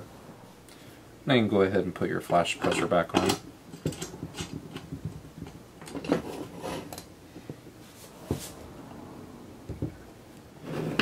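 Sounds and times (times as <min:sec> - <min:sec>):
metal clicks and knocks: 0:02.6 - 0:06.2.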